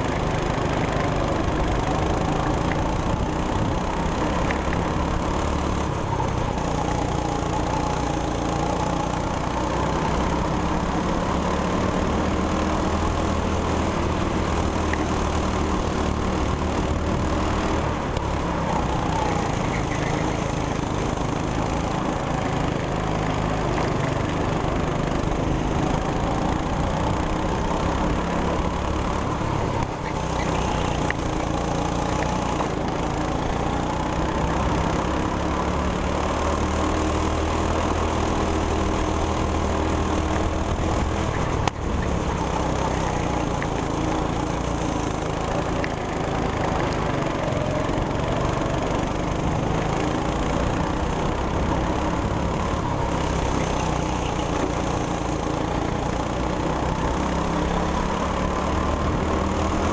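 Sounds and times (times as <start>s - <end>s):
go-kart engine running flat out: 0.0s - 59.9s.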